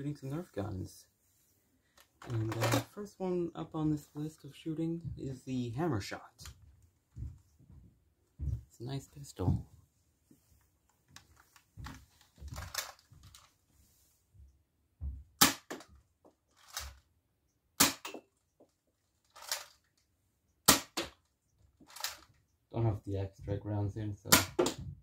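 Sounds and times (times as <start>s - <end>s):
dart pistol snapping shots: 15.4s - 15.8s, 17.8s - 18.2s, 20.7s - 21.2s, 24.3s - 24.8s.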